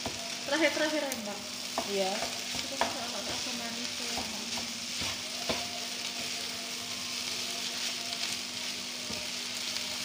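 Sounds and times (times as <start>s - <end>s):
rice sizzling in a frying pan: 0.0s - 10.0s
spatula knocking against pan: 1.7s - 5.8s.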